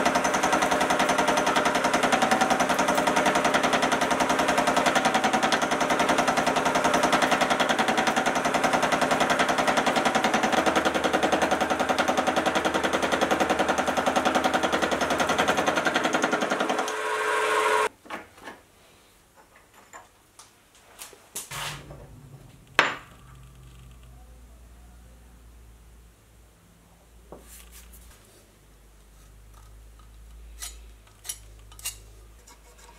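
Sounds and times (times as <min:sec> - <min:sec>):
mill cutter milling steel: 0:00.0 - 0:17.9.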